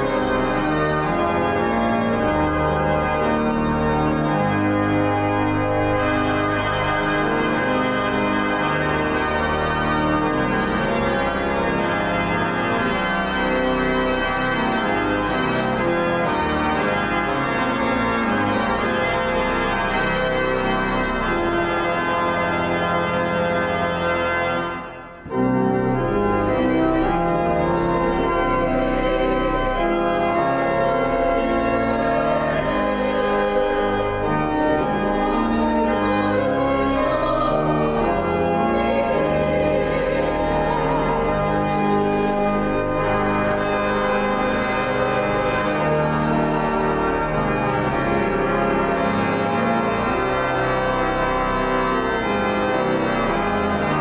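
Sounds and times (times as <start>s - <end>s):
pipe organ chords: 0.0s - 54.0s
choir singing a hymn: 30.1s - 46.9s.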